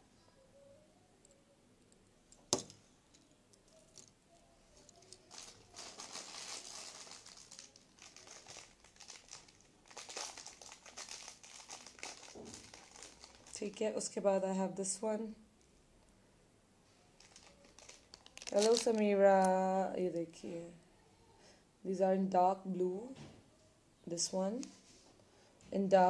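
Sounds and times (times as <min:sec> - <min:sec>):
jewelry rustling: 0:01.2 - 0:13.8, 0:17.0 - 0:19.8.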